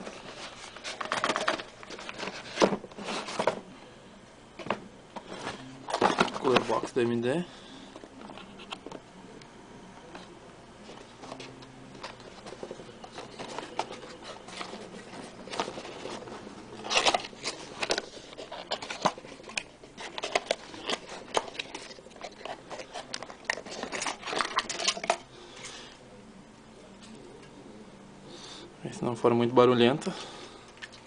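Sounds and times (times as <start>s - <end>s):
hands handling box clicks and rustles: 0.3s - 3.6s, 4.6s - 7.2s, 10.1s - 25.3s.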